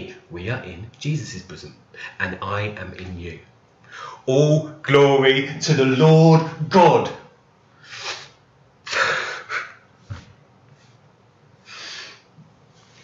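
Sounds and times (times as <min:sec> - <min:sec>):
man weeping and sniffing: 0:07.9 - 0:09.9.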